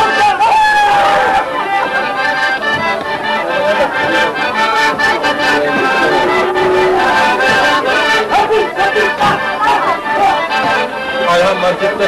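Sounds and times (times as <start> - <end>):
accordion folk dance tune: 1.0 - 12.0
sharp percussive strikes: 5.0 - 8.2.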